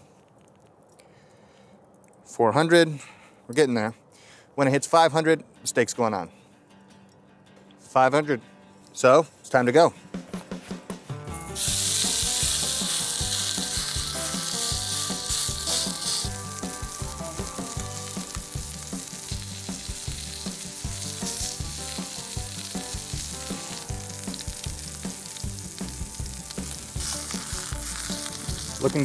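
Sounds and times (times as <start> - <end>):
steak sizzling in a skillet: 11.5 - 29.0.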